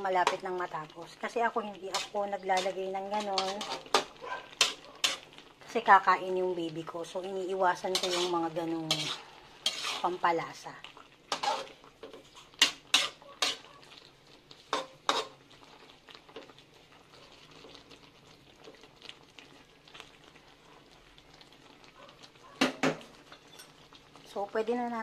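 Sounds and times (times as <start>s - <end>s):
metal spatula scraping a pan: 0.0s - 0.6s, 1.5s - 5.5s, 7.7s - 10.4s, 11.3s - 13.8s, 14.6s - 16.5s.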